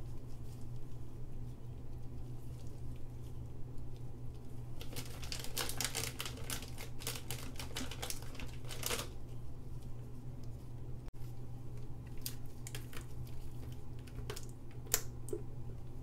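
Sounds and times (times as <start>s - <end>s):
steady low hum: 0.0s - 16.0s
plastic bag crinkling: 4.8s - 9.2s, 12.1s - 14.5s.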